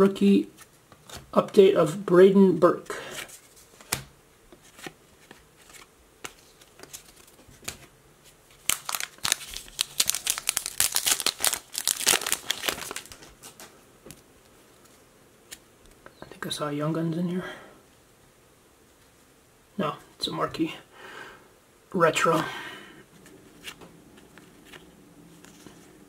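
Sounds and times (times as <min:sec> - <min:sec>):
cards flipping with clicks: 0:03.2 - 0:07.9
card pack wrapper tearing and crinkling: 0:08.5 - 0:13.7.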